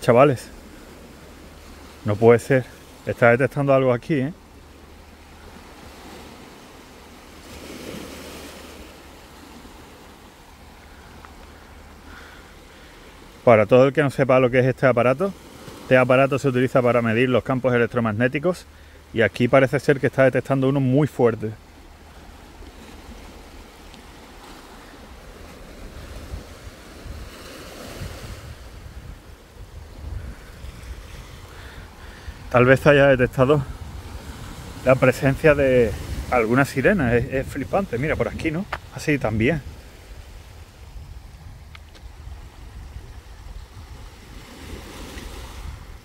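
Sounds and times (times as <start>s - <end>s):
waves washing onto pebble beach: 4.5s - 13.4s, 33.5s - 46.0s
wind rumble on microphone: 22.0s - 46.0s.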